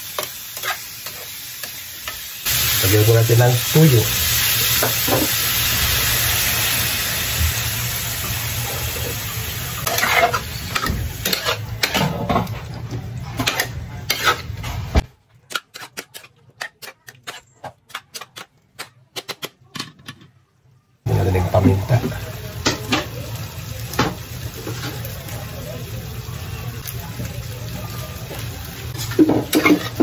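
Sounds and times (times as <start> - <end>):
pork fat sizzling in a frying pan: 0.0 - 12.7, 21.1 - 30.0
spatula scraping a pan: 0.2 - 2.2, 9.8 - 12.5, 13.2 - 14.7, 15.5 - 18.5, 29.0 - 30.0.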